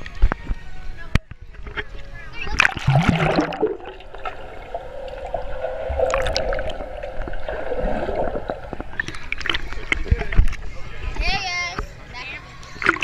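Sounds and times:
underwater bubbling and gurgling: 1.5s - 10.7s
steady hum: 2.8s - 10.0s.

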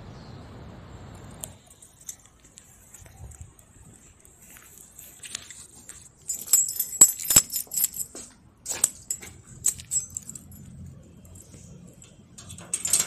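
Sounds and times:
keys jangling: 4.8s - 13.0s
metal clinking on door handles: 6.2s - 13.0s.

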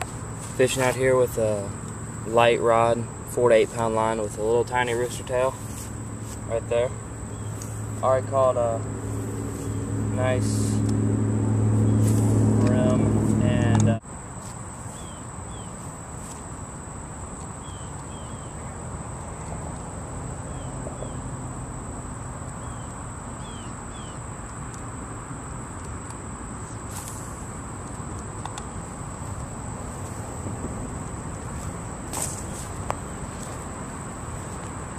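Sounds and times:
high-pitched insect drone: 0.0s - 34.9s
soft hiss: 25.8s - 34.9s.

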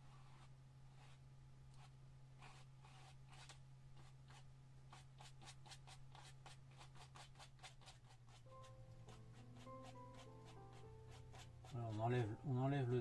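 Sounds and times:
low steady hum: 0.0s - 6.8s
paintbrush dabbing on canvas: 0.0s - 12.8s.

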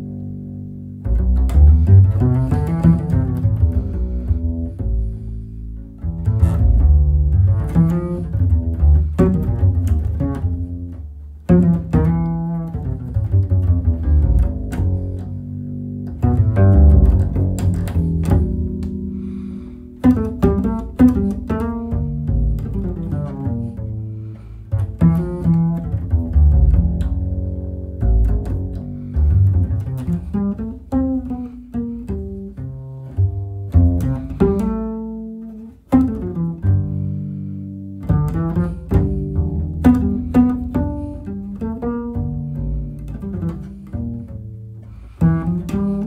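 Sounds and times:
double bass plucked melody: 0.0s - 46.0s.

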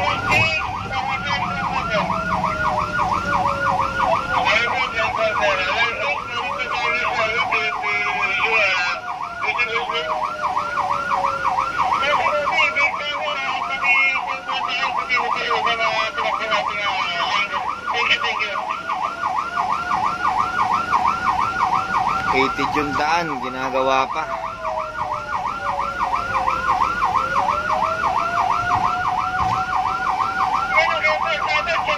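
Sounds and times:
siren wail: 0.0s - 31.9s
siren yelp: 0.0s - 31.9s.

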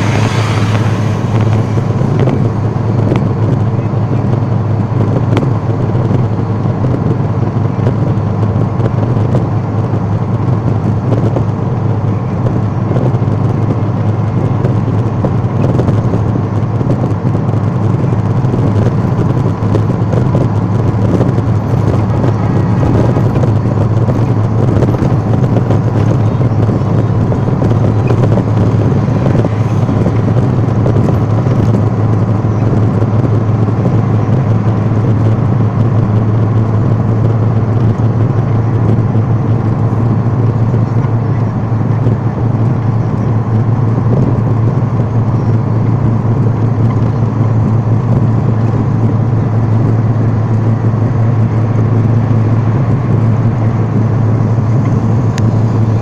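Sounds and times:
vehicle engine and road noise: 0.0s - 56.0s.

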